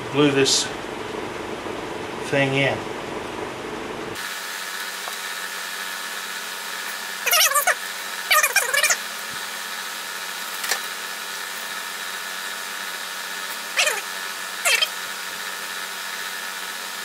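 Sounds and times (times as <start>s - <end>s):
squeaky sped-up voice: 7.2s - 9.0s, 13.7s - 15.0s.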